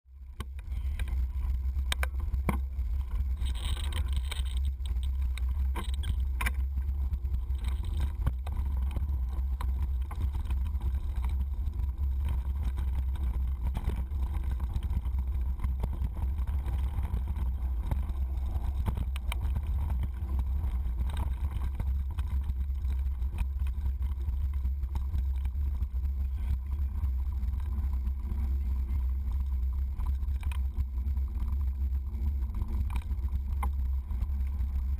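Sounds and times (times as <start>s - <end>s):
wind and trail vibration rumble: 0.0s - 34.9s
bike rattling over bumps: 0.1s - 34.9s.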